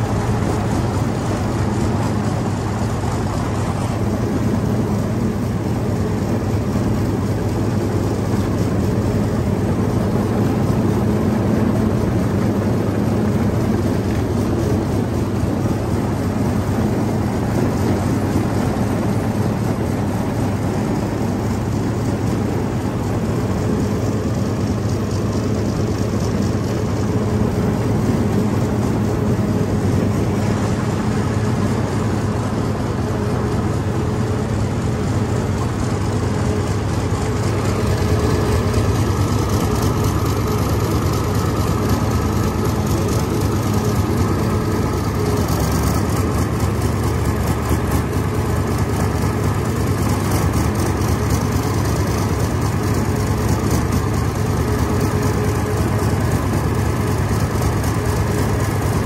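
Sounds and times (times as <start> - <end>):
diesel tractor engine drone: 0.0 - 59.0.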